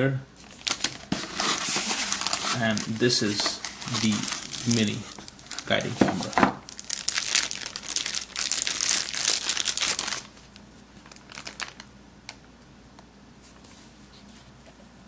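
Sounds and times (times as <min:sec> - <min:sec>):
plastic bag crinkling: 0:00.4 - 0:12.4.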